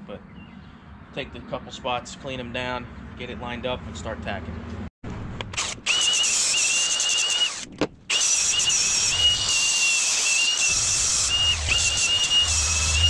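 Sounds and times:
angle grinder grinding metal: 5.6s - 13.0s.

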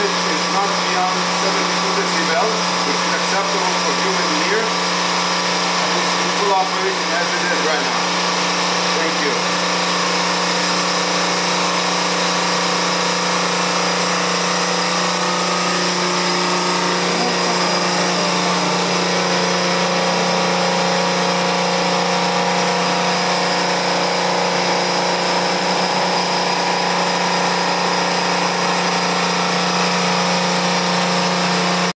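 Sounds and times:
watermaker pumps humming and hissing: 0.0s - 31.9s.

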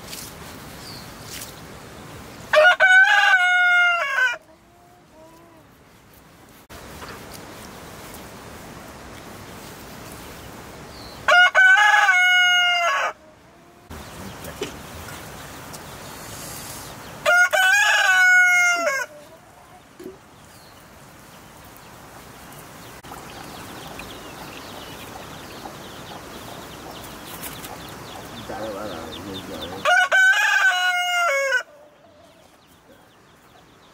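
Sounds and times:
rooster crowing: 2.5s - 4.5s, 11.3s - 13.2s, 17.2s - 19.3s, 29.6s - 32.0s.

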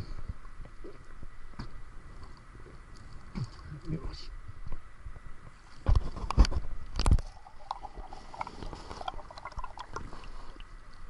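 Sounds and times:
soft clicks and crackles underwater: 0.2s - 11.0s
water sloshing and splashing: 7.0s - 10.8s.

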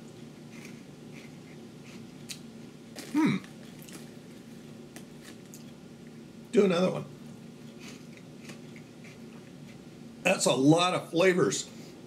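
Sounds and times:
crunchy snack chewing: 0.5s - 5.8s
person humming mm: 3.2s - 3.5s.

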